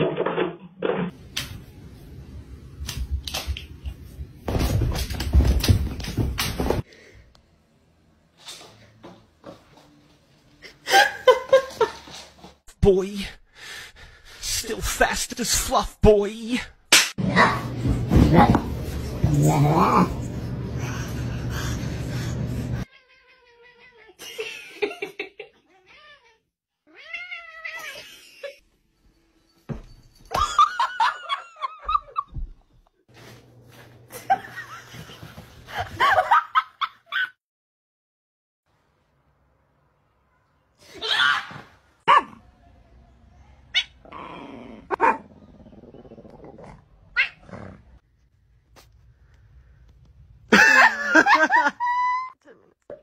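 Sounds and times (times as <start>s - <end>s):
cat meowing: 25.8s - 27.9s
pet animal crying: 47.1s - 47.6s.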